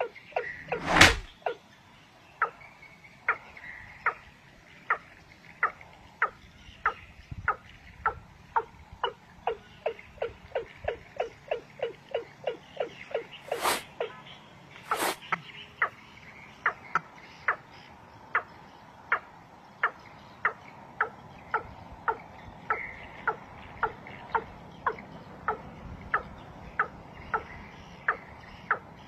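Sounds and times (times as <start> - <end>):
wings flapping: 0.7 - 1.3, 13.5 - 13.8, 14.9 - 15.2.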